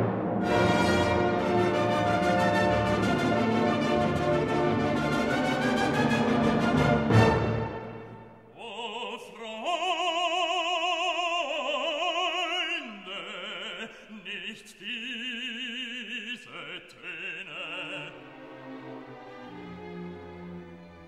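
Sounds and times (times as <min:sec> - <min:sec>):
operatic voice singing with vibrato: 0:08.5 - 0:18.5.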